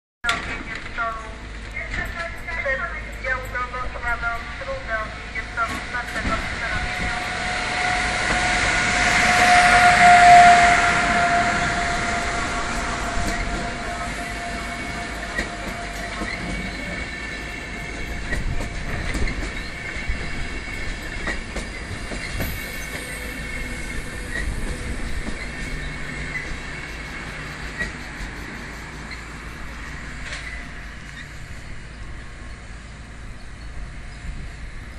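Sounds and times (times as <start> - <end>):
electric locomotive whine: 0.3 - 34.9
high wheel squeal: 6.6 - 32.0.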